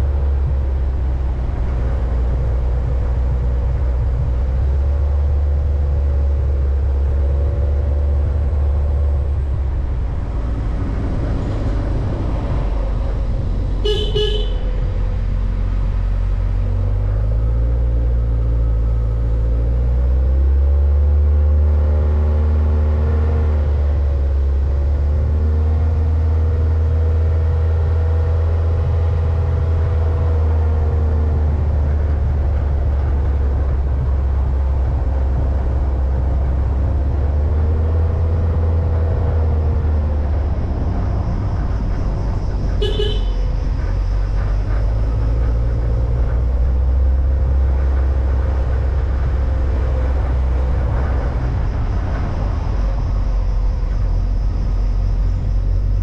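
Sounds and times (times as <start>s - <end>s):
vehicle engine revving: 0.0s - 56.0s
short horn toot: 13.8s - 14.6s, 42.8s - 43.4s.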